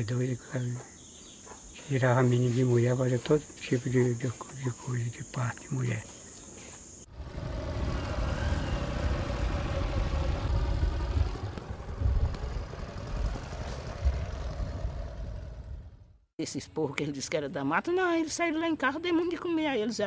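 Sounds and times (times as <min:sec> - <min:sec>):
outboard motor running: 0:07.1 - 0:16.0.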